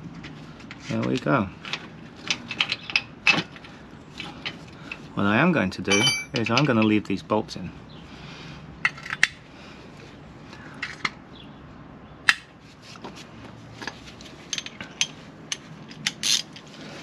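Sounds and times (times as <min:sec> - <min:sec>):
socket wrench metallic clinks: 0:05.9 - 0:06.7.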